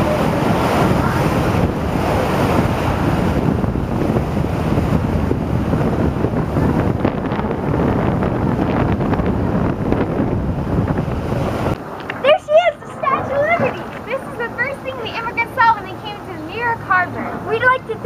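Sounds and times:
rushing water: 0.0 - 18.0
wind buffeting microphone: 0.0 - 18.0.

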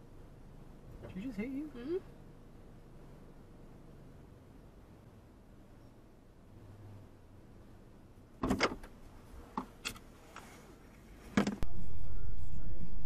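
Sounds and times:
steady low rumble: 0.0 - 13.0
car door clunk: 8.4 - 9.0.

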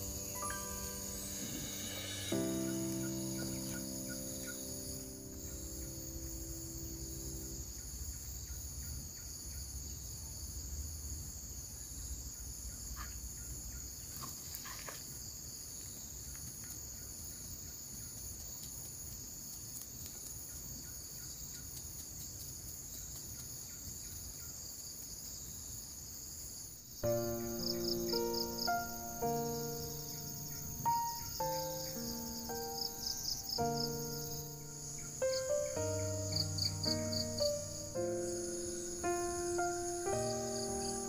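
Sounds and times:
pulsing insect trill: 0.0 - 8.4, 27.0 - 41.0
insects droning: 0.0 - 41.0.

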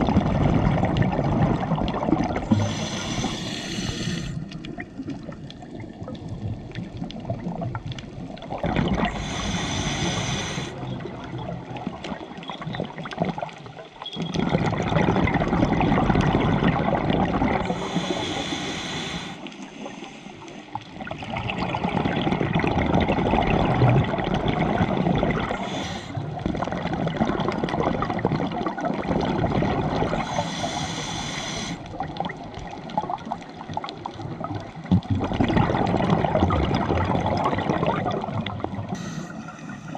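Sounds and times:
exhaled bubbles gurgling: 0.0 - 39.9
regulator inhalation hiss: 2.5 - 4.4, 9.1 - 10.8, 17.7 - 20.4, 25.6 - 26.2, 30.2 - 31.9, 38.9 - 39.9.

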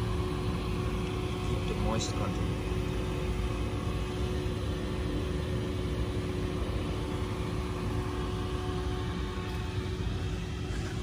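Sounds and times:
constant tone: 0.0 - 11.0
machine hum: 0.0 - 11.0.

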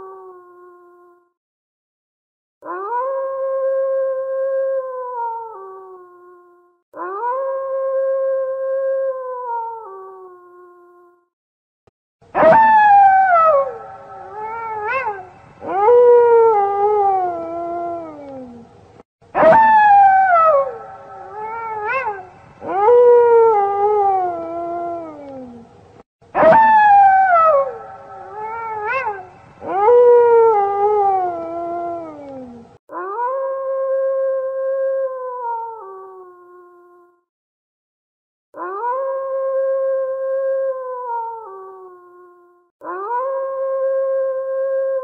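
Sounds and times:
wolves yelping: 12.4 - 18.2, 19.4 - 25.2, 26.4 - 32.2
wolves howling: 12.4 - 18.7, 19.4 - 25.7, 26.4 - 34.5, 42.8 - 45.0.

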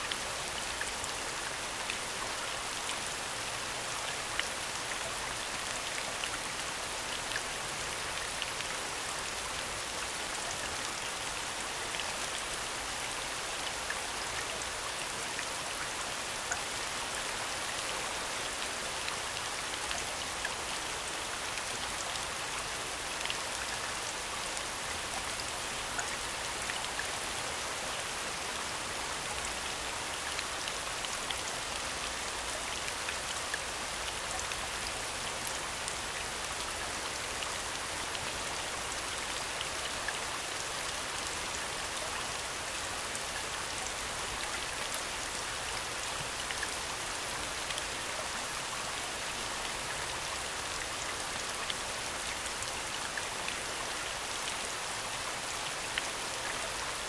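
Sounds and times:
steady rain hiss: 0.0 - 57.0.

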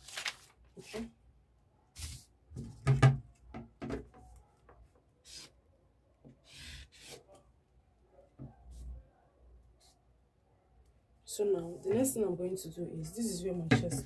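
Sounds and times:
paper sheets rustling on table: 0.0 - 1.2, 2.0 - 2.3
ruler knocking on table: 13.7 - 14.0.

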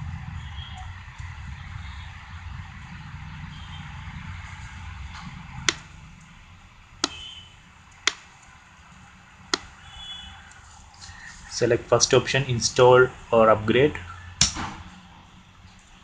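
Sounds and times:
sharp clicks: 7.9 - 8.6.

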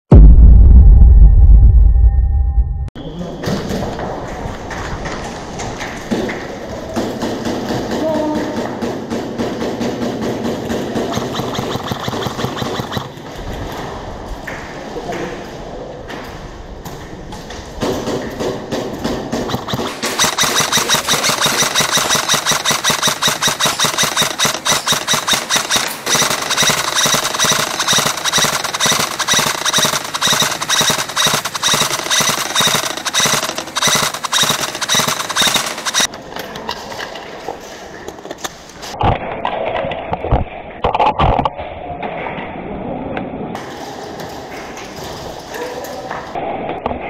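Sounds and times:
airsoft guns firing rapidly: 7.0 - 13.3, 19.1 - 36.1.

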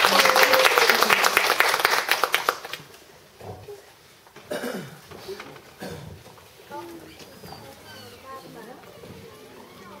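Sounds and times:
audience clapping: 0.0 - 3.0.

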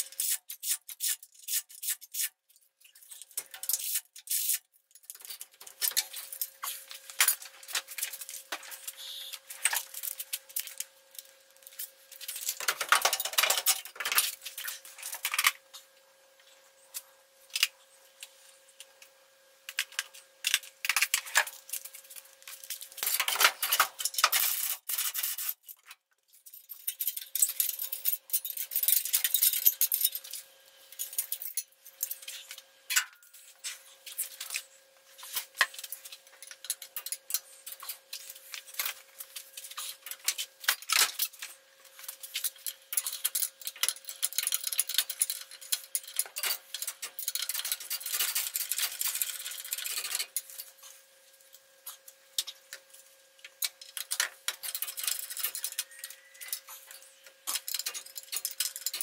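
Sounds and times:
hand tools clicking on metal: 57.5 - 59.0.

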